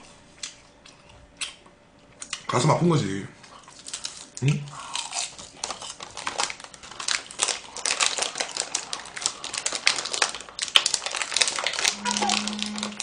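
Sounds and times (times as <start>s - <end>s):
plastic food packet crinkling: 5.1s - 13.0s.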